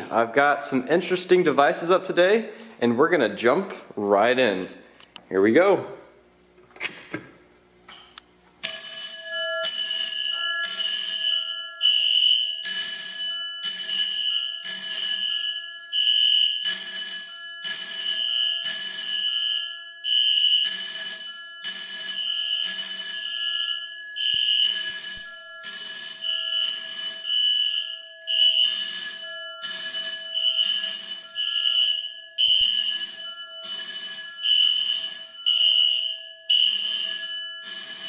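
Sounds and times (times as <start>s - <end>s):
fire alarm bell ringing: 8.6s - 38.0s.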